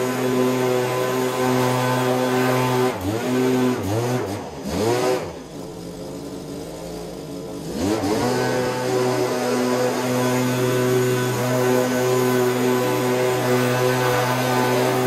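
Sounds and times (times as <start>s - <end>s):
two-stroke power tool engine: 0.0s - 15.0s.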